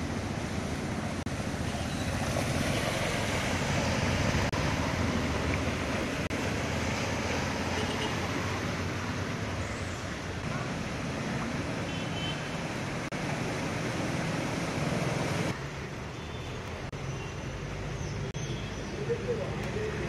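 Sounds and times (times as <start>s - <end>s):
vehicles moving through water: 0.0s - 20.0s.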